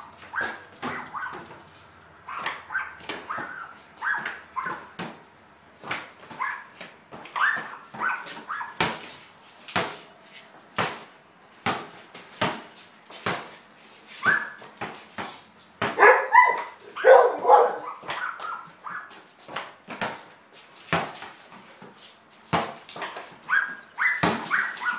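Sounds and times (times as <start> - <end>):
dog barking and yipping: 0.0 - 1.6, 2.2 - 4.9, 6.3 - 8.9, 14.2 - 14.6, 15.9 - 19.2, 23.4 - 24.9
basketball bouncing on concrete: 0.1 - 13.7, 14.3 - 24.9.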